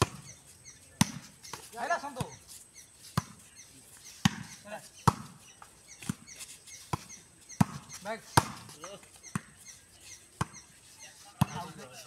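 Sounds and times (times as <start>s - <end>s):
volleyball slaps: 1.0s - 1.6s, 4.2s - 5.4s, 8.4s - 9.5s.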